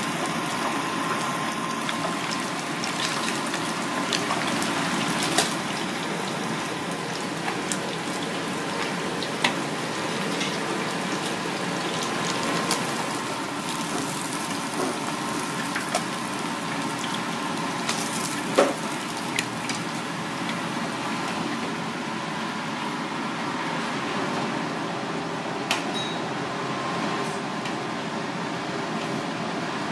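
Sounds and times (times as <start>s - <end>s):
oil sizzling in deep fryer: 0.0s - 23.1s.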